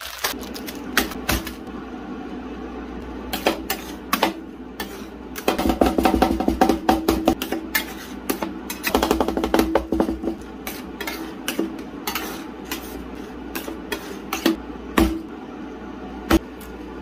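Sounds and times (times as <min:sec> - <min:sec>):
spatulas chopping on steel plate: 0:03.3 - 0:15.3.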